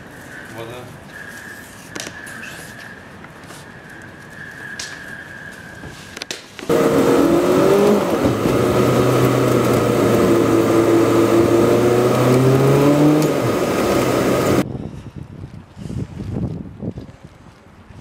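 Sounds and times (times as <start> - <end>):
road noise: 0.0 - 14.7
car engine running: 6.7 - 14.6.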